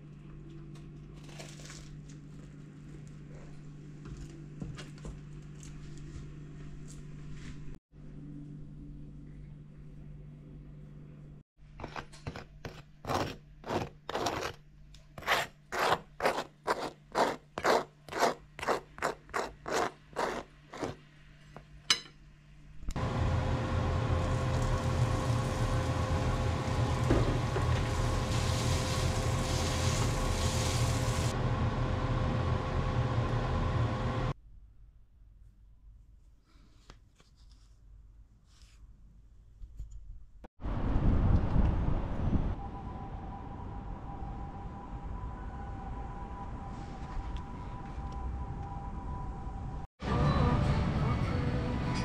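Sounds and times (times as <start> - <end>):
faint hum: 0.0 - 11.4
meat sizzling in a frying pan: 24.5 - 31.3.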